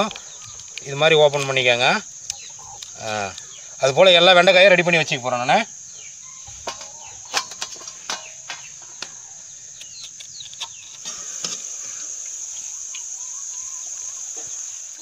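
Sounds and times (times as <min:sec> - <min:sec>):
crickets droning: 0:00.0 - 0:15.0
food frying in oil: 0:10.3 - 0:15.0.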